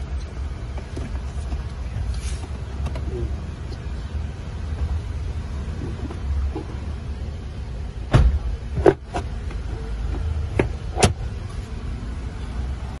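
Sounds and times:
steady low rumble: 0.0 - 13.0
glove box clicking and knocking: 8.0 - 11.3.

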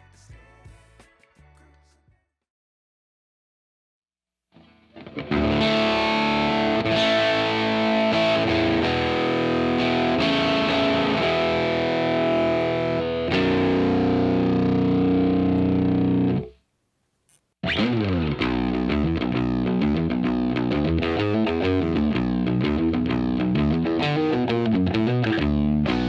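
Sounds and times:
distorted electric guitar chords: 4.6 - 16.6, 17.6 - 26.0.

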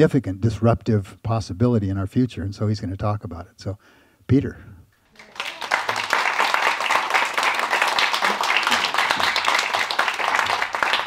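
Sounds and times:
audience applauding: 5.1 - 11.0.

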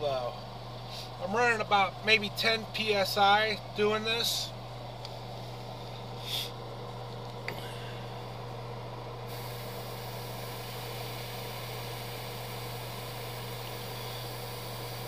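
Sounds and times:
low motor hum: 0.0 - 15.0
airbrush hissing: 9.3 - 15.0.

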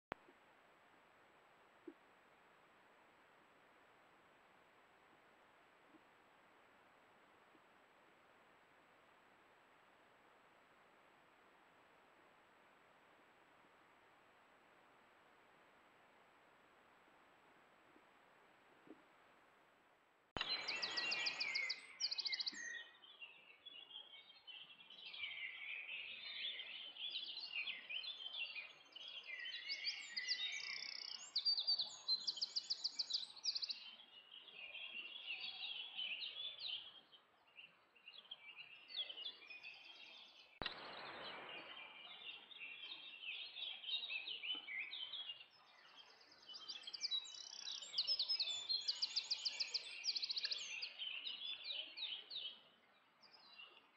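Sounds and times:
songbirds chorus: 20.4 - 53.9.

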